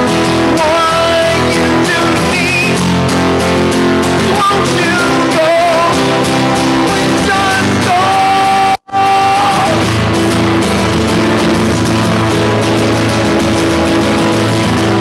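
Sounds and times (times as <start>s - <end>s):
person singing: 0.0s - 3.1s, 4.0s - 10.2s
live rock guitar: 0.0s - 15.0s.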